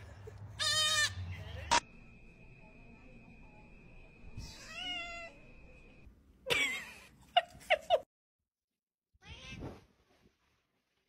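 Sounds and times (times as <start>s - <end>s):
cat meowing: 4.4s - 5.4s, 9.2s - 9.8s.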